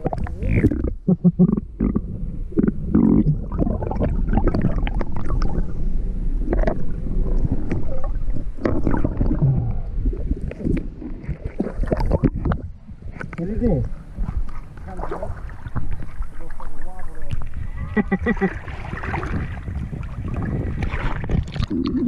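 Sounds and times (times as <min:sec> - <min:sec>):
underwater river rumble: 0:00.0 - 0:22.0
underwater clicks and knocks: 0:10.4 - 0:14.9.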